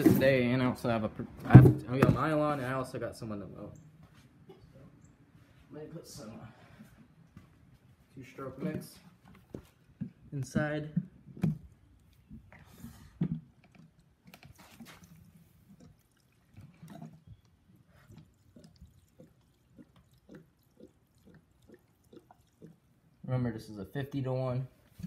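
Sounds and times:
fuel trickling into a tank: 0:12.1 - 0:23.3.

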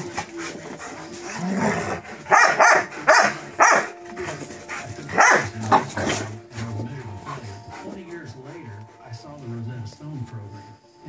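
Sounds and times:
dogs barking: 0:00.0 - 0:08.0.

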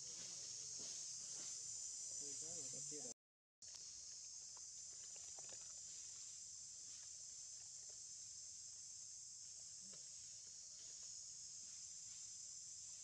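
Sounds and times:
insects buzzing: 0:00.0 - 0:13.0.

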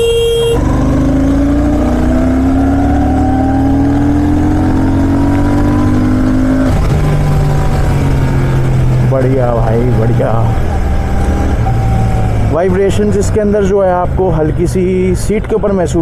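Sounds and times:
vehicle horn: 0:00.0 - 0:00.6
motorcycle engine accelerating: 0:00.0 - 0:13.6.

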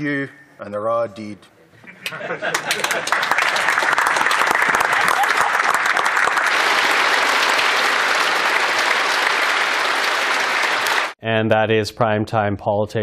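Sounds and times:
crowd applauding: 0:02.4 - 0:11.2.

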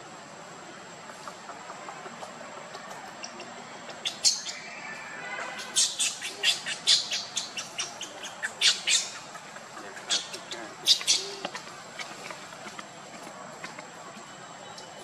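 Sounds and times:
high-pitched chirping calls: 0:03.1 - 0:12.4.

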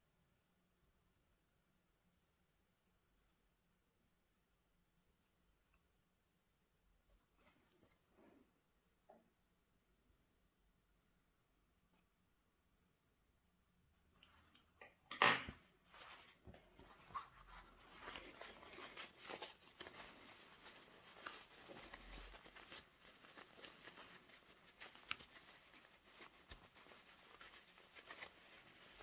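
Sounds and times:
fabric rustling and rubbing: 0:07.1 - 0:09.6, 0:15.5 - 0:29.0.

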